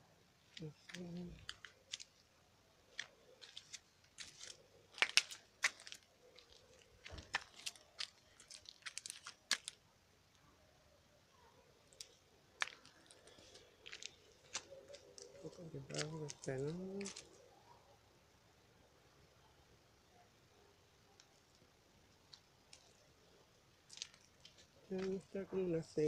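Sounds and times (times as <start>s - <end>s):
sharp clicks and crackles: 0.5s - 2.3s, 2.9s - 9.8s, 21.2s - 25.2s.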